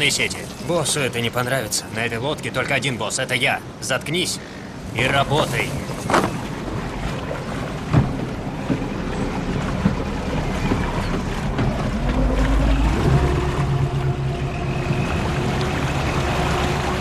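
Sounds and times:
boat engine revving: 0:05.1 - 0:17.0.

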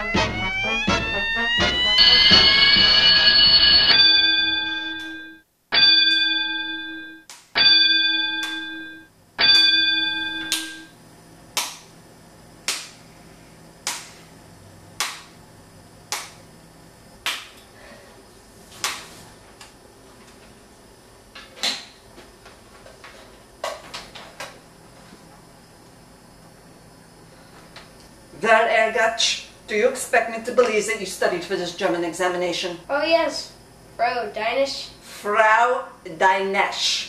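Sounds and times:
bell ringing: 0:01.7 - 0:10.9.

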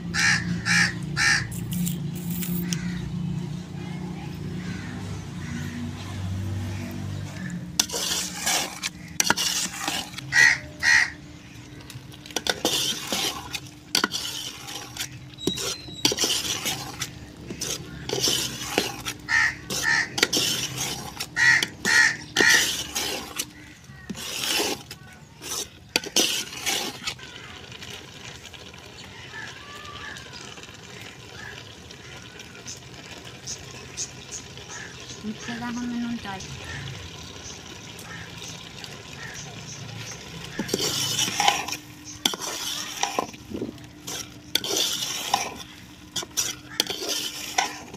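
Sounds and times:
metal spoon scraping a pot: 0:01.2 - 0:02.8, 0:06.7 - 0:28.6, 0:40.0 - 0:47.9.

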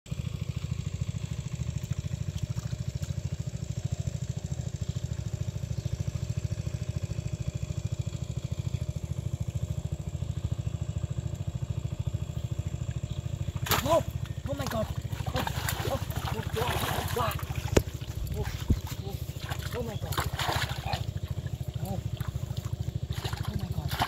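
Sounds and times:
small engine running: 0:00.1 - 0:24.0.

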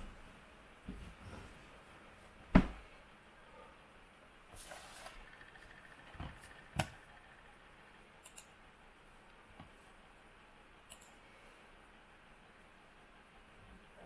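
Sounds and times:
computer mouse clicks: 0:08.2 - 0:08.5, 0:10.9 - 0:11.2.

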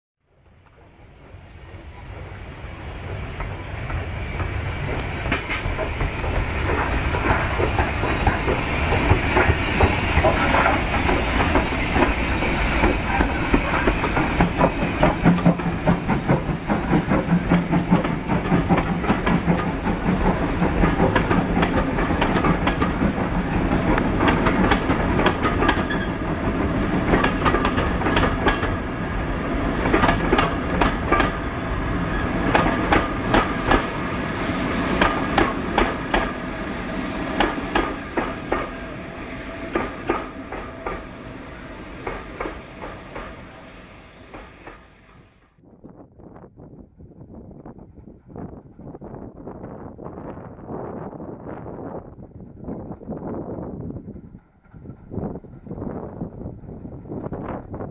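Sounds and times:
wheels clicking over rail joints: 0:02.0 - 0:28.8, 0:29.8 - 0:31.4.

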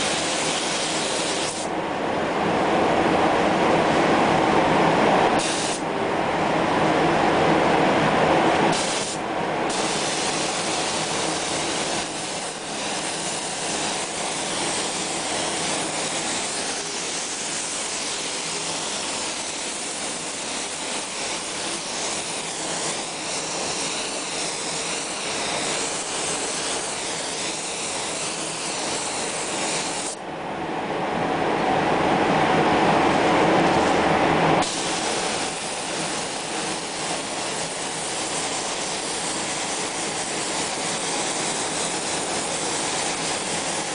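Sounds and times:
spray gun hissing: 0:00.0 - 0:01.7, 0:05.4 - 0:05.8, 0:08.7 - 0:30.2, 0:34.6 - 0:43.9.

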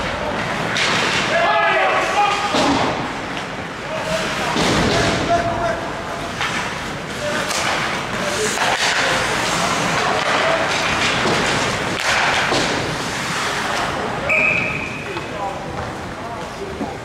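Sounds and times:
players shouting: 0:01.2 - 0:03.1
skates scraping on ice: 0:06.2 - 0:14.9
sticks knocking puck: 0:07.3 - 0:12.9.

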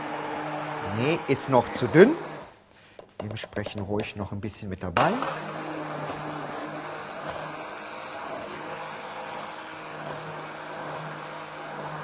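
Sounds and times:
stick blender running: 0:00.0 - 0:02.6, 0:05.0 - 0:12.0.

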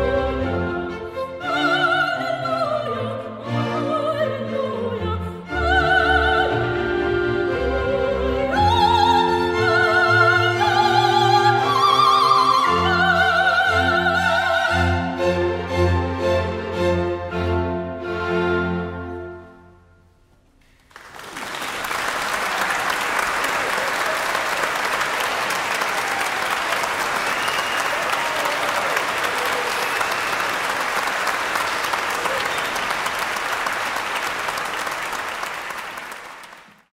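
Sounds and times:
audience applauding: 0:20.6 - 0:36.9.

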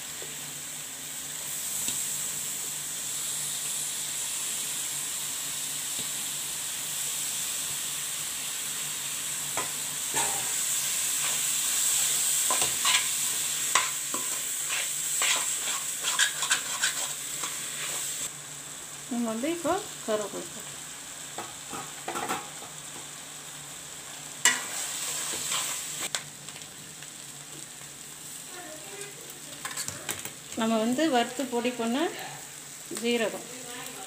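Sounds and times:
food sizzling in a pan: 0:00.0 - 0:34.0
steel spoon scraping a pan: 0:12.0 - 0:18.2, 0:24.4 - 0:26.0.

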